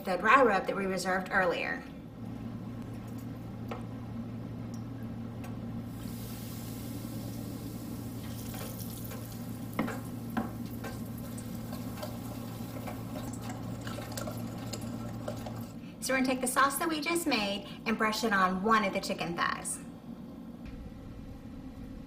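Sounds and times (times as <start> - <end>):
steady low hum: 0.0 - 22.0
hot oil hissing: 5.9 - 15.2.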